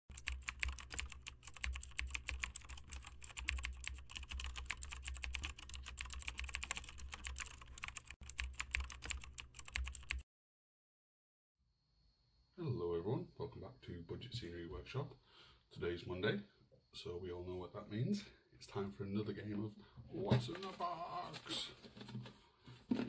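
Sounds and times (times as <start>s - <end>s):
rapid keyboard typing: 0.1s - 10.2s.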